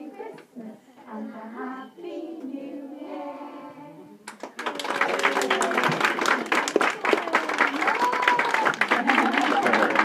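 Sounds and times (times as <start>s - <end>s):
children singing: 0.0s - 4.2s
applause: 4.3s - 10.0s.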